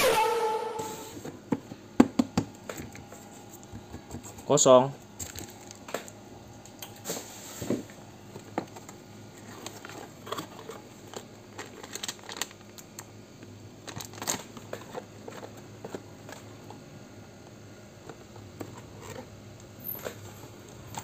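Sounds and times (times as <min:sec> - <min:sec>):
plastic bag crinkling: 0:05.2 - 0:06.2, 0:09.4 - 0:13.0, 0:13.8 - 0:15.5.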